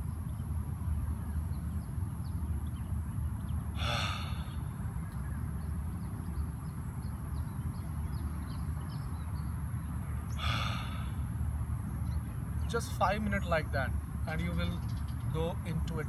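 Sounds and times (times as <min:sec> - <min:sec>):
steady low rumble: 0:00.0 - 0:16.0
man breathing: 0:03.8 - 0:04.7, 0:10.4 - 0:11.3.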